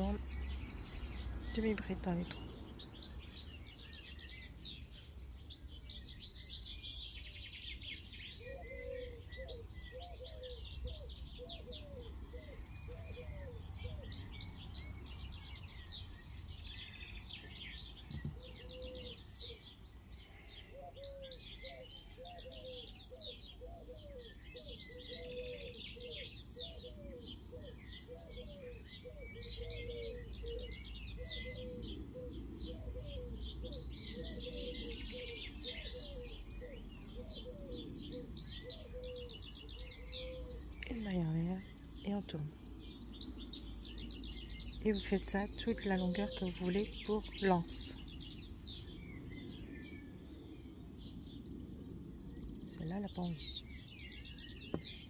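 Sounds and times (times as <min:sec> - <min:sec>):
steady low rumble: 0:00.0 - 0:05.7
birds chirping and twittering: 0:00.0 - 0:55.0.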